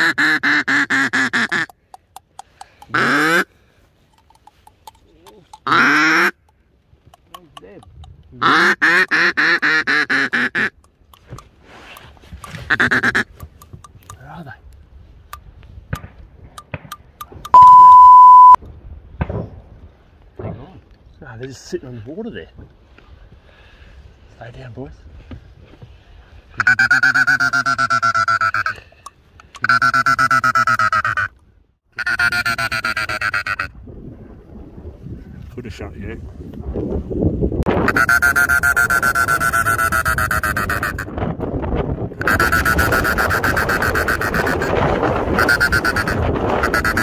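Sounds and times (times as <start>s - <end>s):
duck call quacks: 0.0s - 1.7s, 2.9s - 3.5s, 5.6s - 6.4s, 8.4s - 10.8s, 12.7s - 13.3s, 26.6s - 28.8s, 29.6s - 31.3s, 31.9s - 33.7s, 37.8s - 41.1s, 42.2s - 47.0s.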